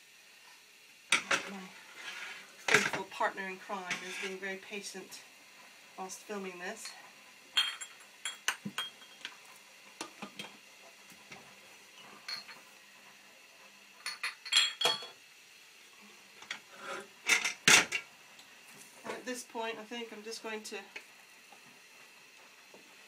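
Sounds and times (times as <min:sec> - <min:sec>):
glass jars and ladle clinking: 0:07.6 - 0:09.2, 0:12.3 - 0:12.6, 0:14.1 - 0:15.2.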